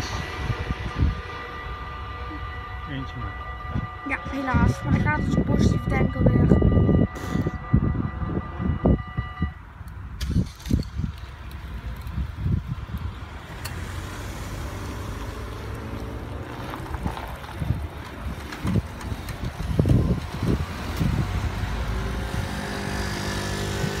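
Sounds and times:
cars driving over railway tracks: 0.0s - 24.0s
scooter engine running: 17.6s - 24.0s.

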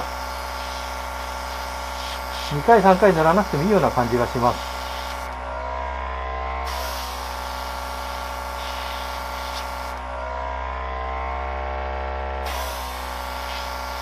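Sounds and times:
airbrush spraying hiss: 0.0s - 5.3s, 8.5s - 10.0s, 12.5s - 14.0s
small compressor humming: 0.0s - 14.0s.

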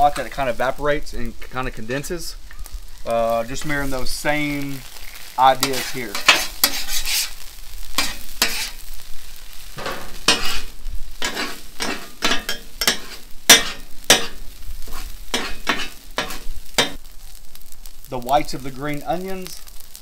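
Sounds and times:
rice sizzling: 0.0s - 20.0s
steel spatulas scraping on griddle: 4.9s - 8.9s, 9.8s - 17.0s.

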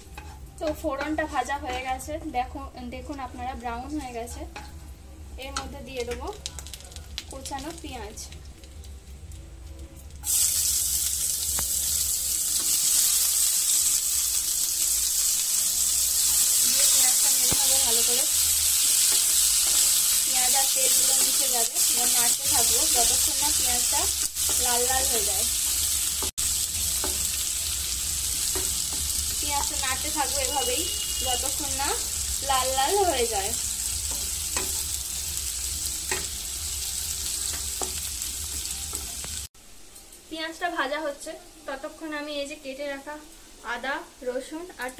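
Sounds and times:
onions sizzling in hot oil: 0.0s - 44.9s
spatula scraping a pan: 0.1s - 0.5s.

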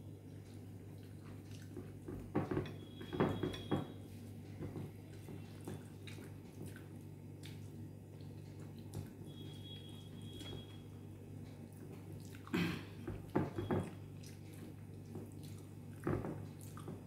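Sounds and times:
chewing: 0.2s - 2.1s, 5.0s - 9.2s, 11.4s - 12.5s, 14.2s - 17.0s.

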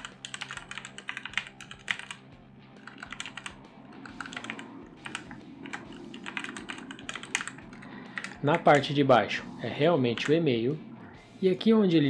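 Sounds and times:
keyboard typing clicks: 0.0s - 2.2s, 2.8s - 7.5s.

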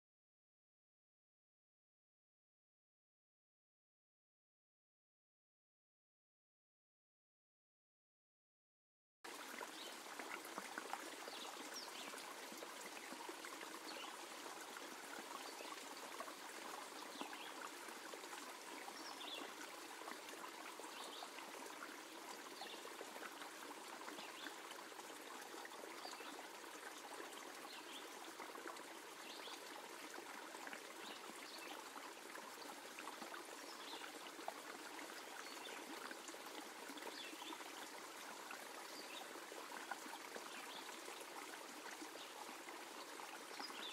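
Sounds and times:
water trickling: 9.3s - 43.9s.

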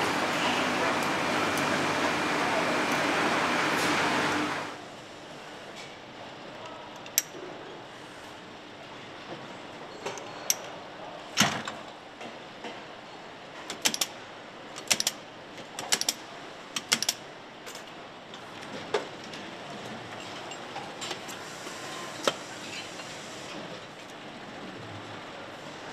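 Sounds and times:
factory floor hum: 0.0s - 25.9s
metallic clicks and clacks: 15.8s - 16.2s.

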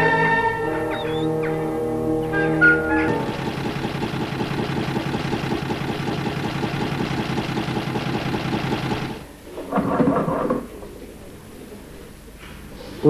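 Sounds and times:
car engine running: 3.1s - 9.2s.

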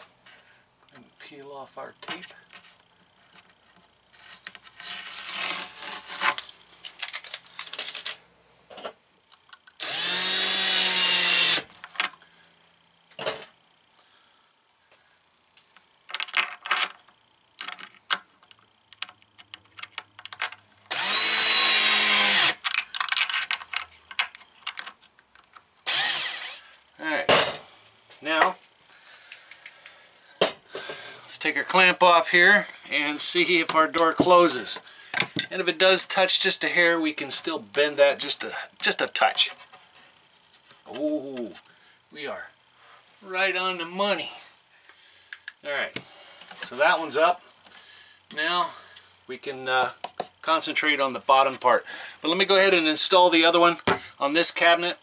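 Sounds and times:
cordless drill driving screws: 9.8s - 11.7s, 20.9s - 22.6s, 25.8s - 26.7s.

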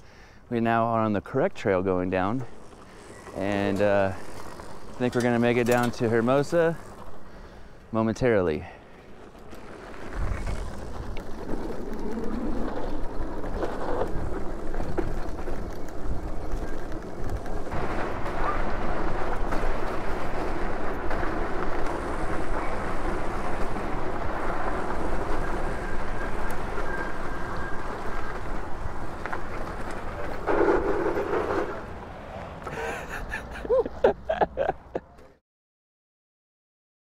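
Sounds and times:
tyres rolling on dirt and gravel: 0.5s - 35.4s
wind buffeting microphone: 10.0s - 32.0s.

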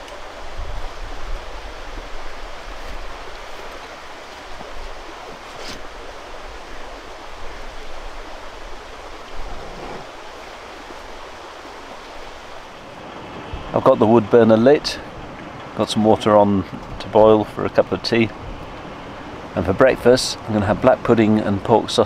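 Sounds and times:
wind buffeting microphone: 7.4s - 11.2s.

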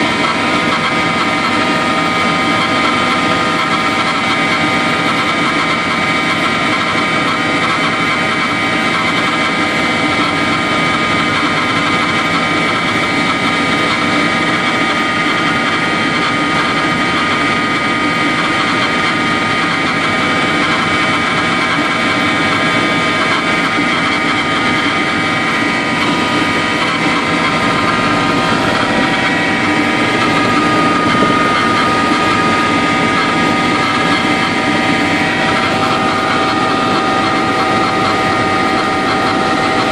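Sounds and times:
helicopter engine and rotors: 0.0s - 39.9s
high whining tones: 9.8s - 39.9s.

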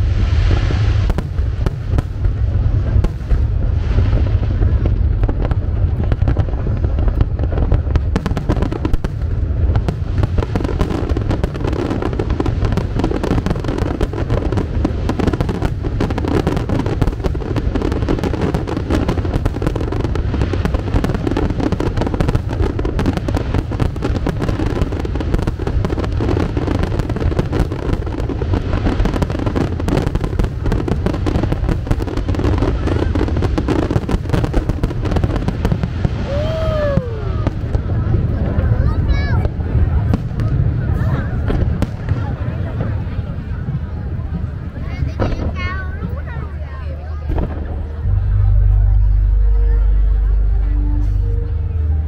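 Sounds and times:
fireworks bangs and crackles: 0.0s - 49.1s.

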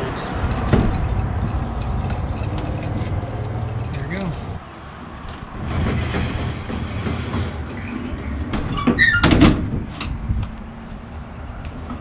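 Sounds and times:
metal clanks of door closing: 0.4s - 4.6s, 5.6s - 10.2s
trailer ramp door rubbing and rattling: 5.4s - 10.2s.

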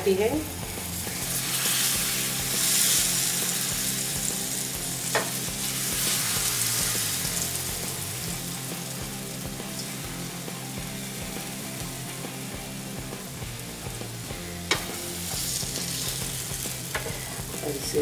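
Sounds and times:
batter sizzling in a pan: 0.1s - 18.0s.

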